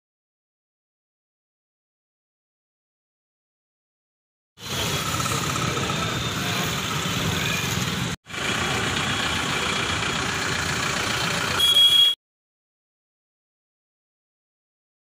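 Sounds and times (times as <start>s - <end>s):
vehicle engines passing and idling: 4.6s - 12.2s.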